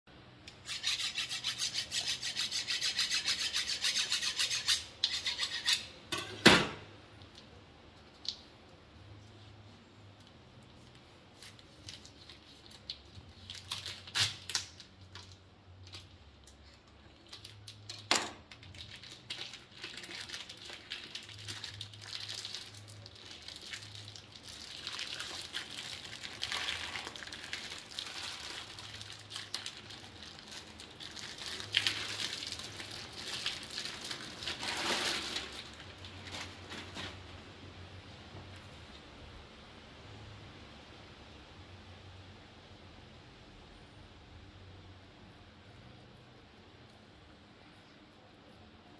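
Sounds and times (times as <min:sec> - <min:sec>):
plastic wrapping crinkling and tearing: 0:10.8 - 0:37.4.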